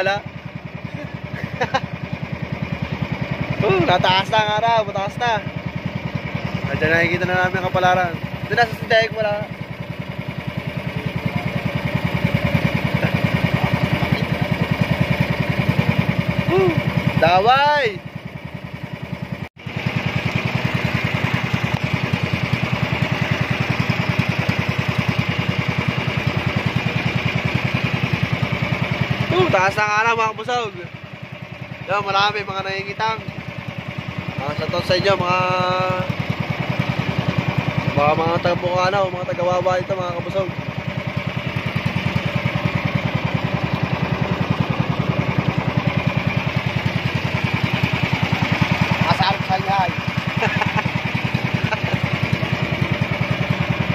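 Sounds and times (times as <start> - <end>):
small boat engine running: 0.0 - 53.9.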